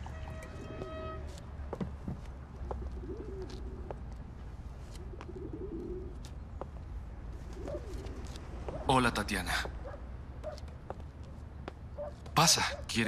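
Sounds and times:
pigeon cooing: 2.6 - 4.0, 5.0 - 6.2, 7.5 - 8.8.

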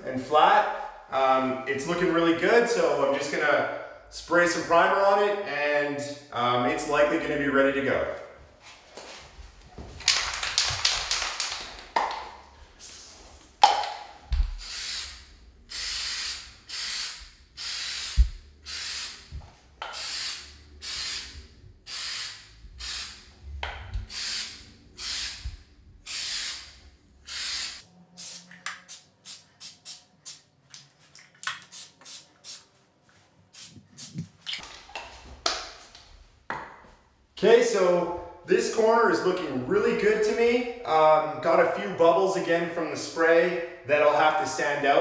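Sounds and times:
spray can hissing: 14.4 - 23.2, 24.0 - 25.4, 26.0 - 30.5, 31.4 - 32.7, 33.5 - 34.3.

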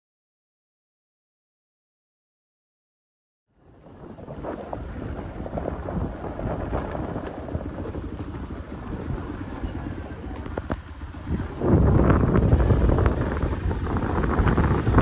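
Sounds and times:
wind buffeting microphone: 3.6 - 15.0.

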